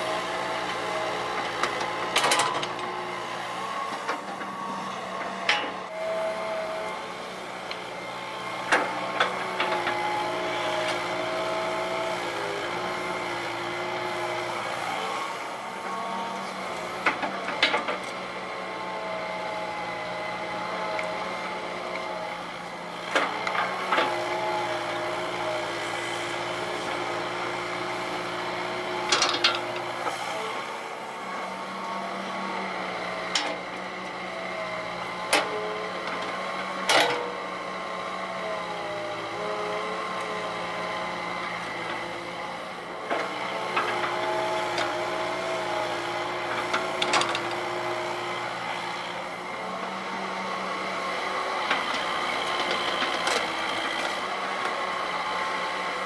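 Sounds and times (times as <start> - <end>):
excavator diesel engine: 0.0 - 56.0.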